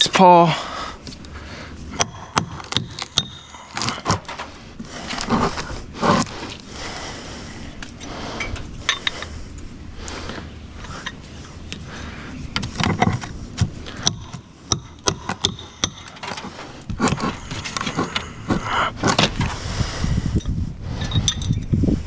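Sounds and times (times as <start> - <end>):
metal clinking and scraping: 8.4 - 9.3, 21.0 - 21.7.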